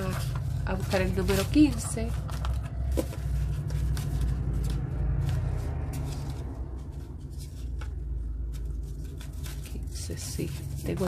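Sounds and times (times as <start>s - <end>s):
paper envelopes flipped by hand: 0.0s - 11.0s.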